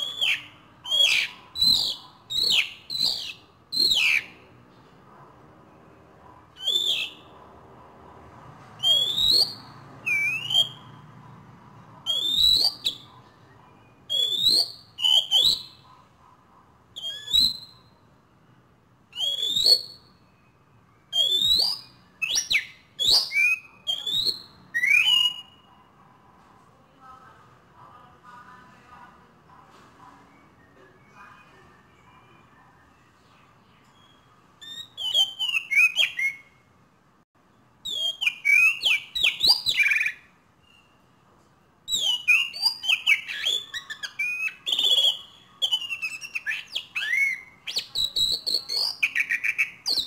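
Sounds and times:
starling whistling calls: 0.0 - 4.4, 6.5 - 7.4, 8.8 - 11.0, 12.0 - 15.9, 17.0 - 18.0, 19.1 - 25.7, 33.9 - 36.7, 37.8 - 41.1, 41.9 - 50.0.

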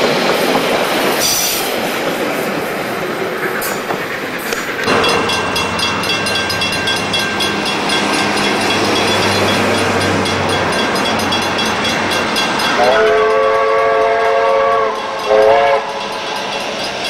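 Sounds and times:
steam locomotive rumble: 0.0 - 17.0
train chime whistle blasts: 4.9 - 17.0.

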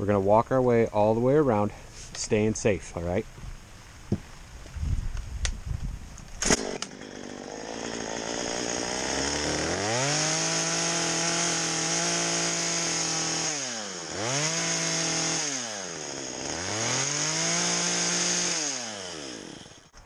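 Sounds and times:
chainsaw revving and cutting log: 6.4 - 19.9.

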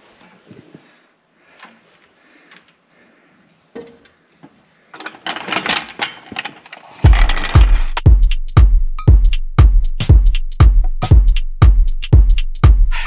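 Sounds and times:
metal rattling and clanking: 5.0 - 8.0
floor jack clicks: 5.1 - 8.0
music with heavy drum beats: 7.1 - 13.0.

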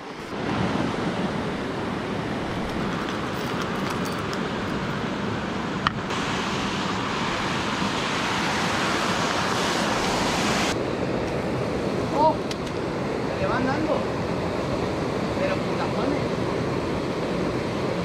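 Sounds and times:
river water flowing: 0.0 - 18.0.

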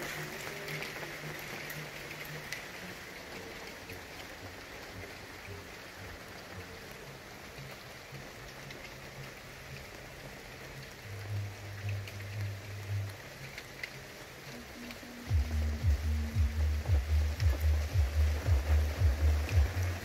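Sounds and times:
rain falling on foliage: 0.0 - 20.0
drop ticks: 14.8 - 20.0.

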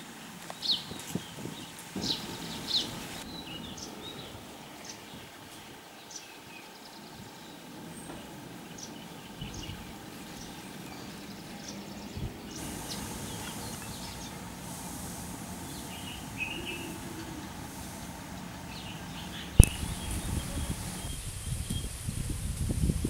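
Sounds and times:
hiss: 0.0 - 23.0
small birds chirping: 0.4 - 22.0
low steady rumble: 7.7 - 23.0.

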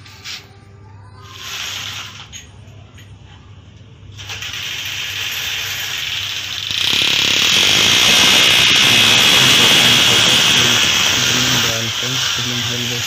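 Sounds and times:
electric drill grinding into tile: 4.2 - 13.0.

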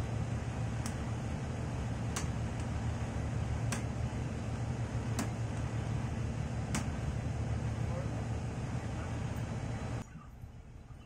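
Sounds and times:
low machinery hum: 0.0 - 11.0.

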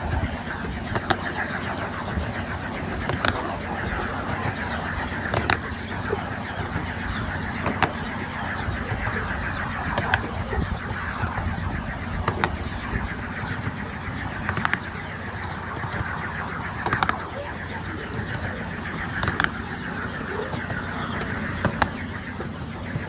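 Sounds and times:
rumble of wheels on rail: 0.0 - 23.0
wheels clicking over rail joints: 2.8 - 6.9.

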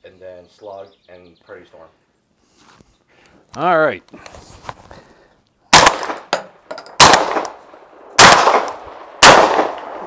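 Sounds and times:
suppressed shotgun shots: 5.7 - 6.4, 7.0 - 7.6, 8.2 - 10.0.

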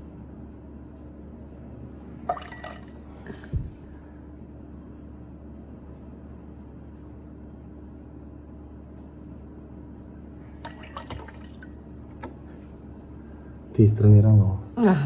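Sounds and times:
steady low hum: 0.0 - 15.0
water drops ticking into jug: 2.3 - 2.9, 10.6 - 12.2.

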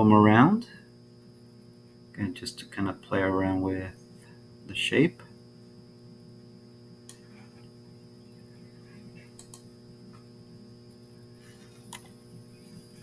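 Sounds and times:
low electrical hum: 0.0 - 13.0
computer mouse clicks: 7.1 - 7.3, 9.3 - 9.7, 11.8 - 12.2.

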